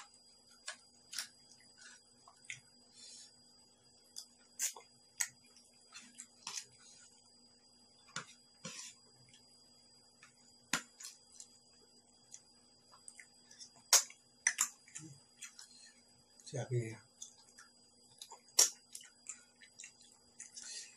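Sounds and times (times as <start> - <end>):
chewing mouth sounds: 17.2 - 20.8.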